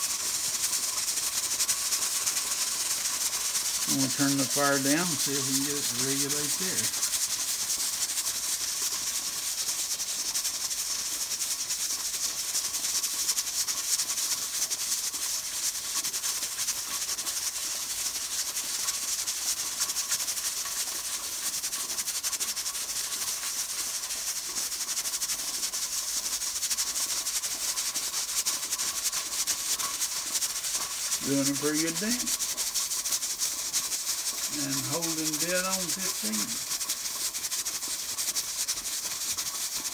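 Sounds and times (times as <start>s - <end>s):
steam hissing: 0.0s - 39.9s
pressure cooker weight rattling: 1.6s - 7.1s.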